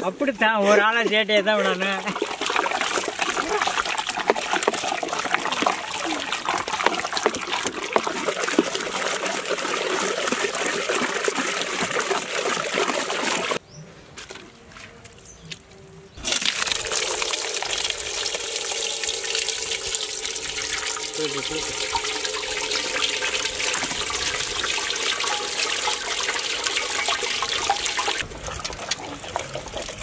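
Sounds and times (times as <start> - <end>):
wet squelching of mashed fruit: 1.1 - 13.4
juice pouring through colander: 1.6 - 13.6, 16.2 - 30.0.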